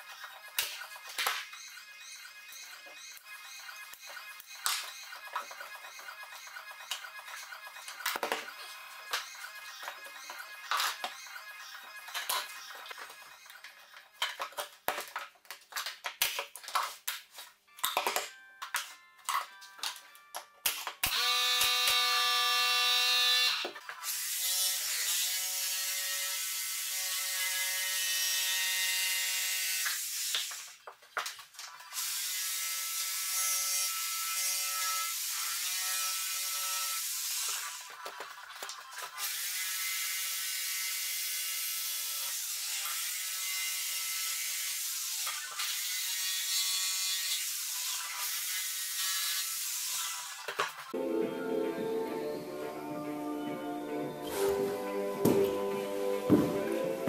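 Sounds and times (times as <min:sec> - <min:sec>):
jigsaw cutting wood: 0:00.0 - 0:13.8, 0:21.0 - 0:30.7, 0:31.8 - 0:50.9.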